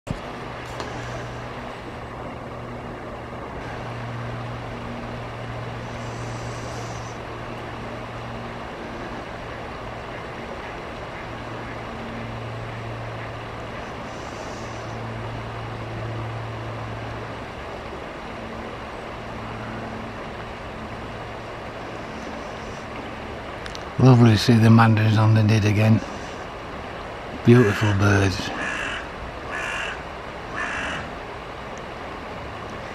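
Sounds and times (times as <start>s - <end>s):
low hum: 0.1s - 32.9s.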